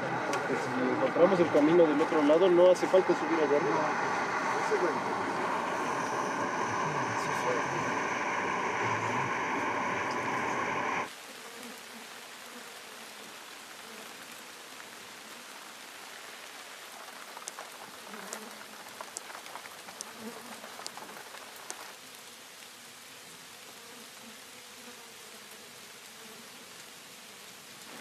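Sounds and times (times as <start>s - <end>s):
rain hissing: 1.1s - 11.1s, 15.8s - 22.0s, 27.6s - 28.0s.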